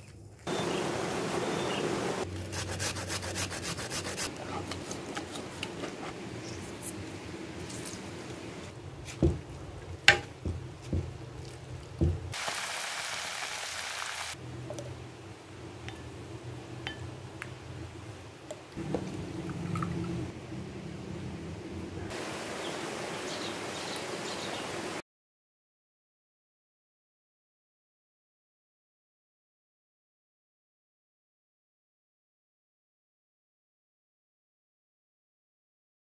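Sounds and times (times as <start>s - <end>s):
scraping in soil: 0.0s - 9.2s
steady hiss: 0.5s - 11.0s, 12.0s - 19.4s, 22.0s - 25.0s.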